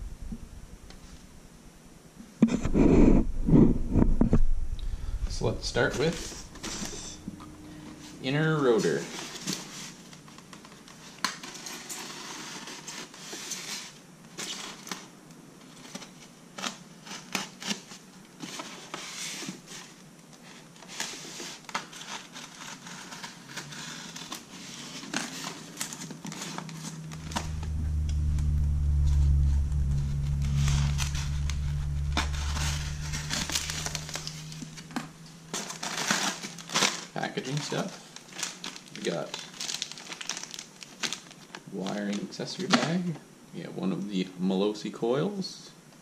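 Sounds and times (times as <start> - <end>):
steady low rumble: 0.0 - 10.4, 26.6 - 36.2.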